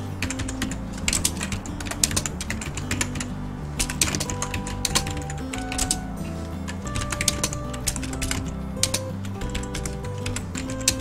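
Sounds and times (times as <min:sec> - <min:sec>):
background music: 0:00.0 - 0:11.0
typing on keyboard: 0:00.2 - 0:11.0.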